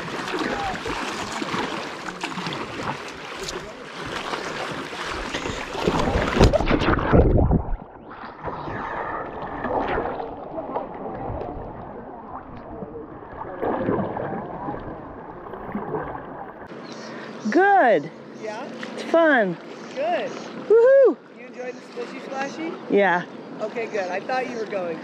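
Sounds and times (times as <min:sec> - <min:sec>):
river water rushing and splashing: 0:00.0 - 0:06.7.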